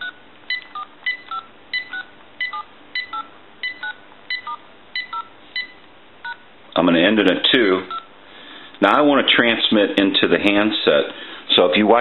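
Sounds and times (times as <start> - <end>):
touch-tone dialing beeps: 0.0 - 6.4, 7.9 - 8.1.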